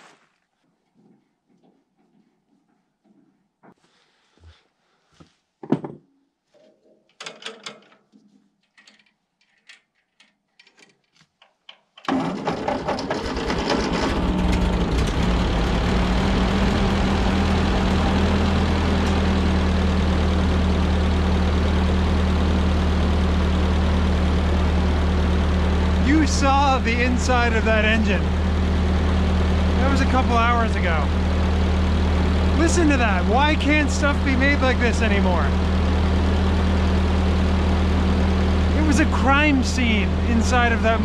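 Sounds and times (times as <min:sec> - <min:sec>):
faint clanks and clicks: 0:06.6 - 0:12.1
tractor engine starting and idling: 0:12.0 - 0:41.0.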